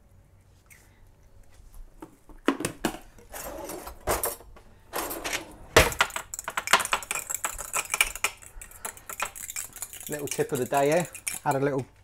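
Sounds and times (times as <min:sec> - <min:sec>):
kitchen knocks and rustles: 0:02.0 - 0:08.4
utensil clinking in ceramic ramekin: 0:07.1 - 0:11.8.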